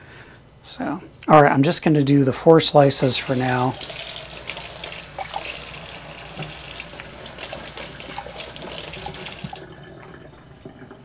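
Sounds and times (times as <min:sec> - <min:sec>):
tap running water into sink: 0:03.2 - 0:11.0.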